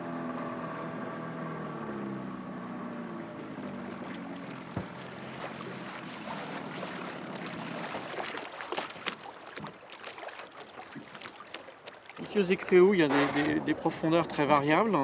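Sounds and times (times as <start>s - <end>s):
outboard motor humming: 0.0s - 15.0s
water slapping against hull: 3.5s - 15.0s.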